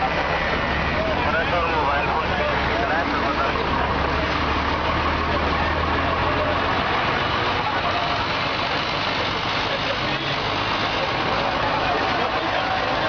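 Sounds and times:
busy street noise: 0.0s - 13.0s
truck engine running: 0.0s - 13.0s.

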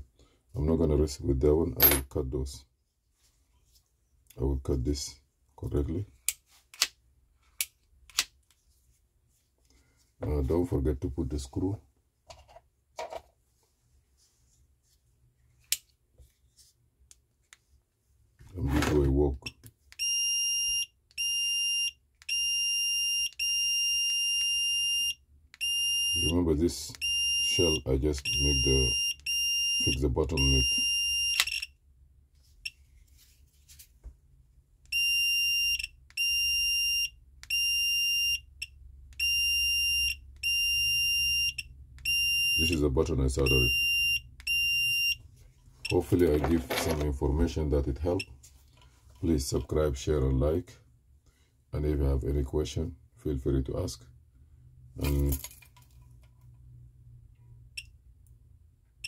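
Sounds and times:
shrill tester beeps: 20.0s - 26.3s, 27.0s - 31.8s, 34.9s - 42.8s, 43.4s - 45.2s.

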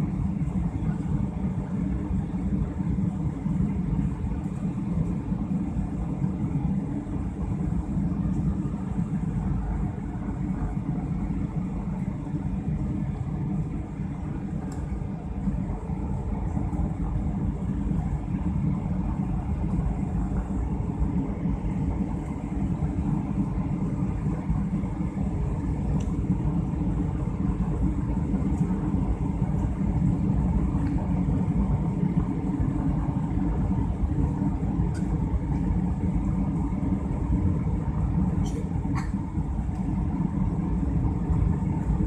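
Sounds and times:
jet cabin engine rumble: 0.0s - 42.0s.

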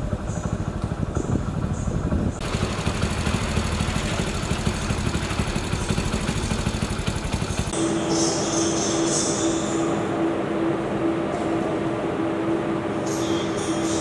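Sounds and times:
engine idling: 0.0s - 14.0s
steady hum with high hiss: 0.0s - 14.0s.

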